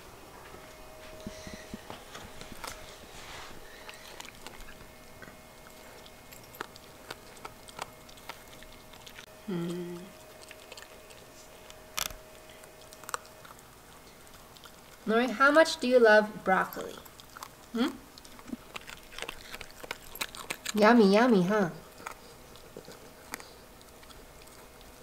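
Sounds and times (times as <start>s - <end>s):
dog chewing crunchily: 1.0s - 25.0s
low hum of a voice: 9.4s - 10.2s, 17.7s - 18.1s.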